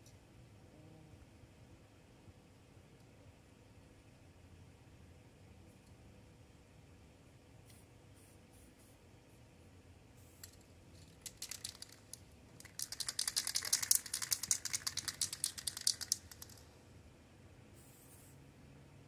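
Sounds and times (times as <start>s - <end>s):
spray can rattling: 10.2s - 16.7s
hiss of paint spraying: 17.8s - 18.4s.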